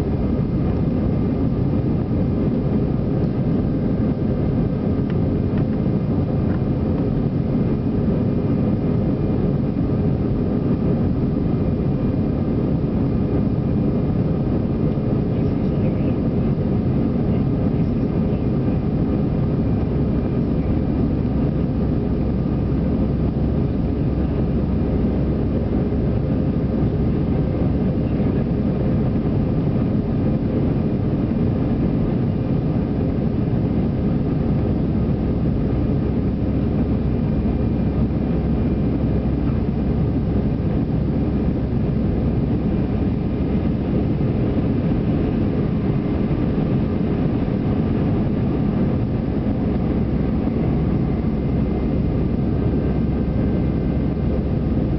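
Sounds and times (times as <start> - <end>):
faint steady hum: 0.0 - 54.9
jet engine rumble in cabin: 0.0 - 54.9.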